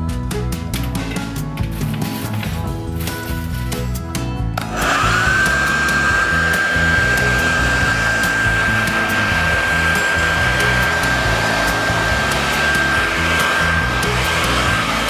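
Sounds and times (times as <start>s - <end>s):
background music: 0.0s - 15.0s
hairdryer running: 4.6s - 15.0s.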